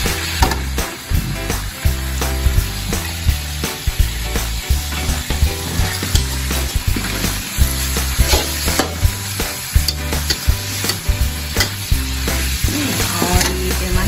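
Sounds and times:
meat sizzling in hot oil: 0.0 - 14.0
utensils scraping metal wok: 4.7 - 14.0.

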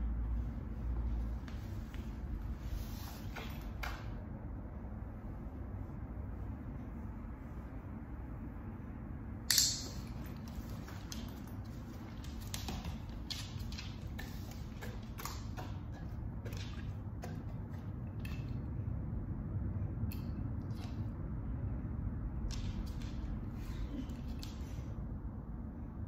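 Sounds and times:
steady low hum: 0.0 - 26.0
soft ticks and rustles: 10.1 - 18.5.

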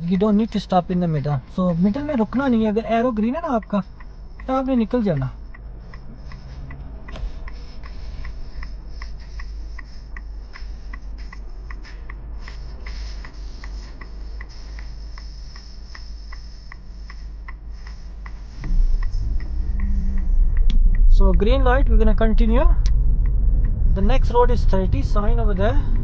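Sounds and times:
turn signal ticking: 0.0 - 26.0
car engine idling: 18.2 - 26.0.

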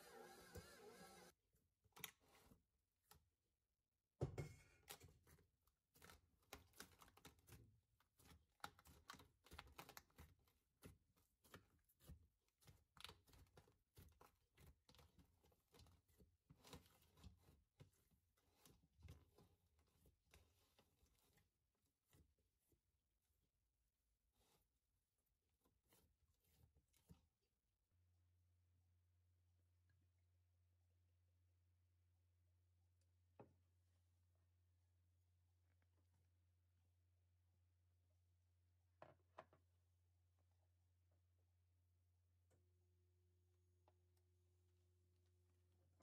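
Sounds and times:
hands kneading sticky dough: 4.6 - 27.6.

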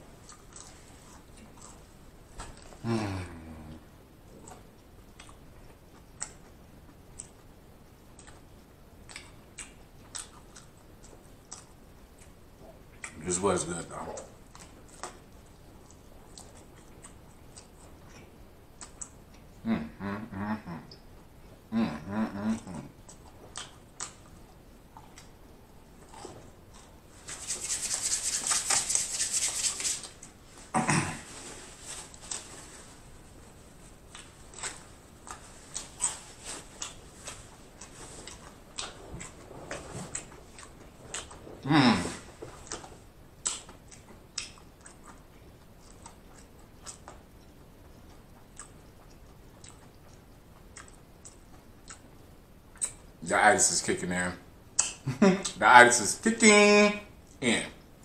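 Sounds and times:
person chewing food: 0.0 - 13.2, 14.1 - 19.6, 22.4 - 53.2
hands rubbing together: 27.2 - 30.2.

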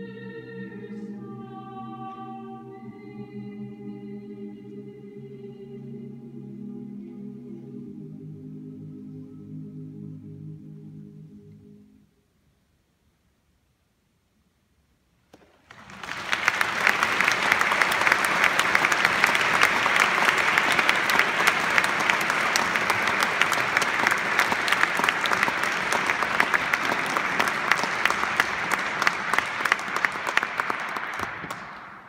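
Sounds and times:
audience applauding: 15.4 - 32.0.

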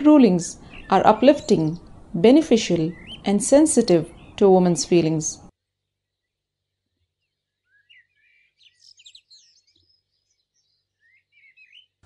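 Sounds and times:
faint bird chirping: 0.0 - 12.0.

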